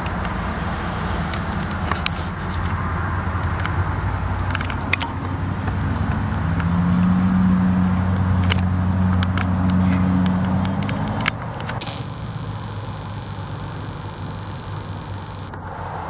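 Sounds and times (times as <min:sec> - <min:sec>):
low engine hum: 0:00.0 - 0:16.0
faint clicks: 0:08.4 - 0:15.7
higher hum: 0:11.8 - 0:15.7.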